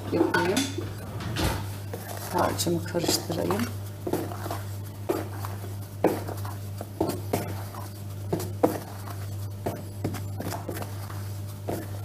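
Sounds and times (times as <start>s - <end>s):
spatula scraping batter in bowl: 0.1s - 12.0s
spatula knocking against bowl: 3.1s - 10.9s.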